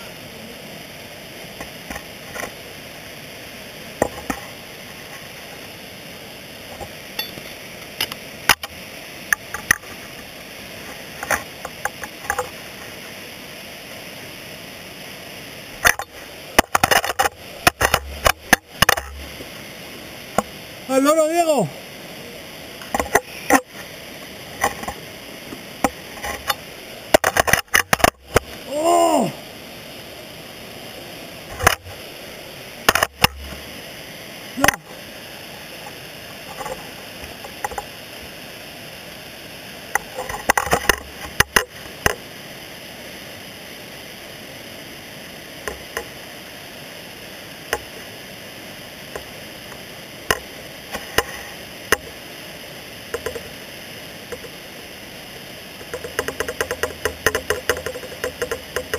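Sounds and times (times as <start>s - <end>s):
person crying out: 20.9s - 21.7s, 28.6s - 29.4s.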